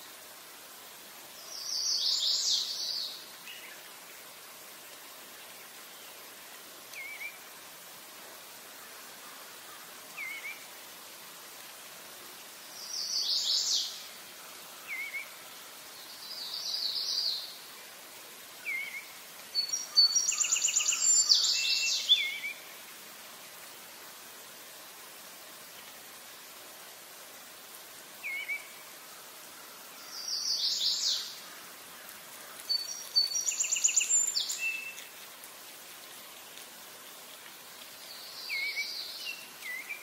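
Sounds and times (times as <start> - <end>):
steady outdoor hiss: 0.0 - 40.0
songbirds singing: 18.6 - 22.8, 29.9 - 35.2
soft bird chirps: 32.6 - 35.2.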